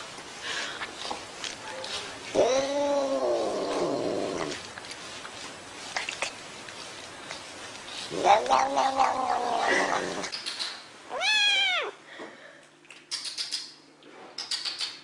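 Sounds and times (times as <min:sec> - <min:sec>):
cat yowling: 0:08.1 - 0:10.3, 0:11.1 - 0:12.0
kitten meowing: 0:11.1 - 0:12.0.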